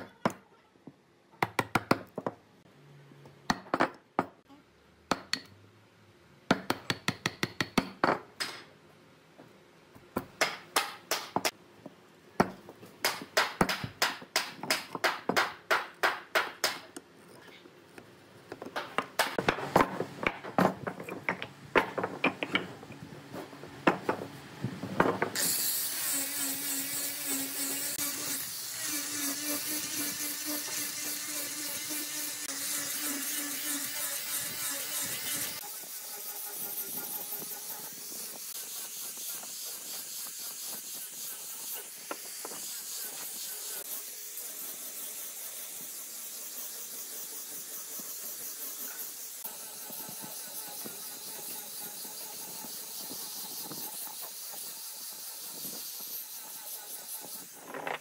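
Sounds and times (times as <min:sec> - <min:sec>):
angle grinder sanding: 0:25.4 - 0:58.0.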